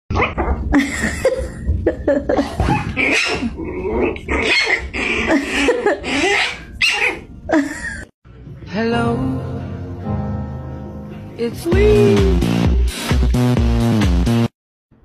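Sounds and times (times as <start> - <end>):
puppy yipping and growling: 0.1 - 0.7, 2.6 - 7.3.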